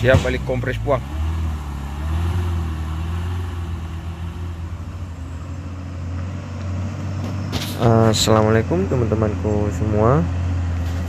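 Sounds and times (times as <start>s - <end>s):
truck diesel engine droning: 0.0s - 11.0s.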